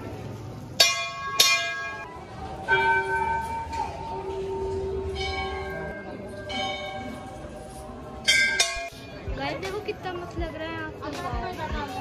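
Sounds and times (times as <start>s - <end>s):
temple bells ringing: 0.8s - 9.2s.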